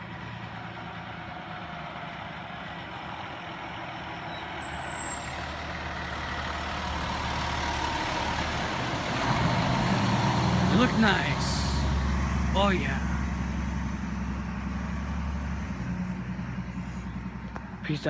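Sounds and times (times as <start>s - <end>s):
fire engine diesel engine passing: 0.0s - 18.0s.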